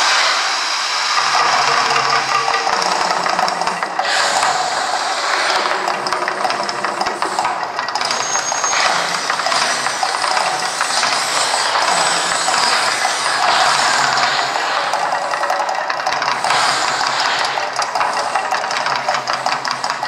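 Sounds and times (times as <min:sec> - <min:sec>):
gas flame jets rushing: 0:00.0 - 0:20.0.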